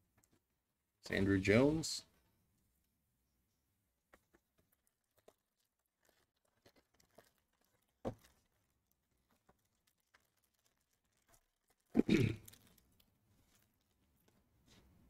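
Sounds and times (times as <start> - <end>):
foil wrapper tearing: 4.7 - 13.7.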